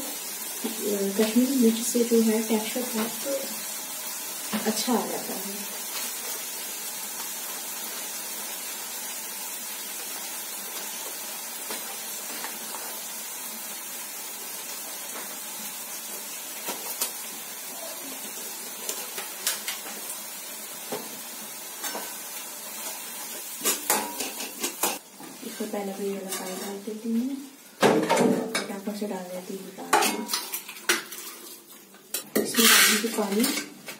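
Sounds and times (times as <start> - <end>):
masala sizzling in a frying pan: 0.0 - 33.9
metal spoon scraping a pan: 23.6 - 25.0, 26.2 - 26.9, 32.1 - 33.8.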